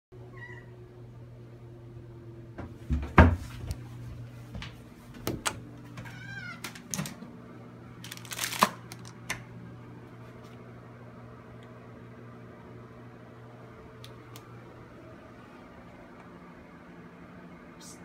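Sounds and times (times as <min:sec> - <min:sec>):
cat meowing: 0:00.3 - 0:00.8, 0:06.0 - 0:06.7.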